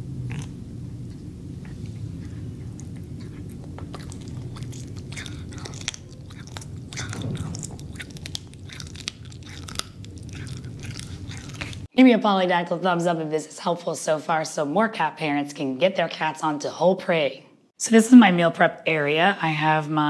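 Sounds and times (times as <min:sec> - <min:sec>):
steady low hum: 0:00.0 - 0:12.0
cat chewing with wet crunches: 0:00.1 - 0:11.9.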